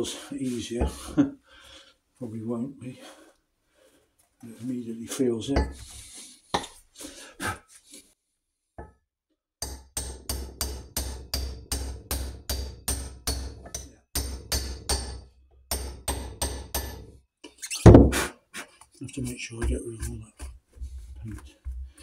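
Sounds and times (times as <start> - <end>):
hammer tapping ringing metal: 9.6 - 17.0.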